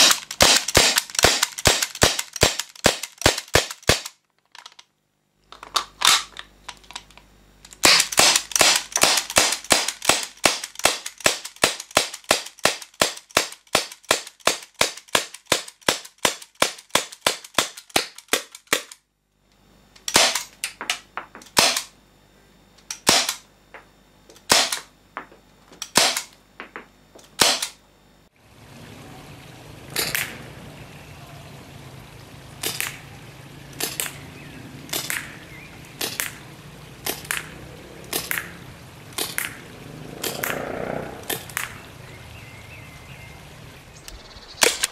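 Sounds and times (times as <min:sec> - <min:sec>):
airsoft pistol gas shots: 0:00.0 - 0:04.1, 0:07.8 - 0:18.8, 0:20.1 - 0:20.5, 0:21.6 - 0:21.9, 0:23.0 - 0:23.4, 0:24.5 - 0:24.9, 0:25.9 - 0:26.3, 0:27.4 - 0:27.8, 0:34.9 - 0:35.3.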